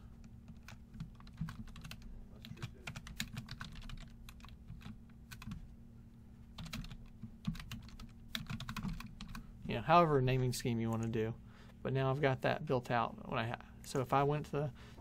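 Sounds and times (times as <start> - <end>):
low steady hum: 0.0 - 15.0
keyboard typing: 0.2 - 5.7, 6.5 - 9.4.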